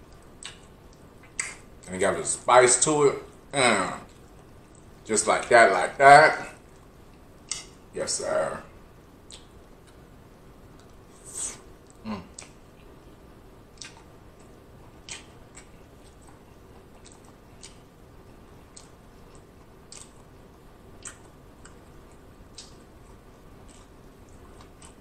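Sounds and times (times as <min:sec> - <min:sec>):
person chewing with mouth smacks: 0:00.0 - 0:01.7, 0:09.2 - 0:13.0, 0:13.7 - 0:17.9, 0:18.6 - 0:20.3, 0:21.0 - 0:25.0.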